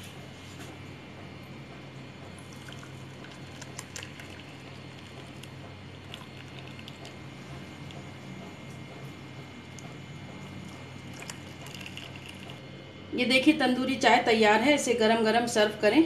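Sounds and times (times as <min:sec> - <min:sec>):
steady low hum: 0:00.0 - 0:16.0
tea trickling into a cup: 0:02.4 - 0:08.0, 0:10.5 - 0:12.6.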